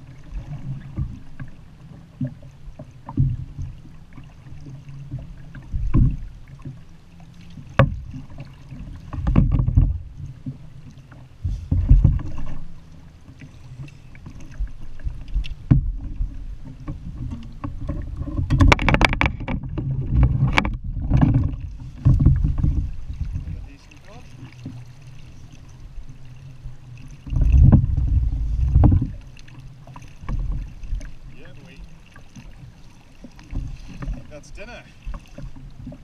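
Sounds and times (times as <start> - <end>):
sharp knocks on kayak: 7.7 - 8.1, 9.1 - 10.6, 11.4 - 12.6, 15.4 - 23.6, 27.3 - 29.2
low rumbling bumps: 11.4 - 13.0, 13.6 - 26.1, 26.7 - 31.9.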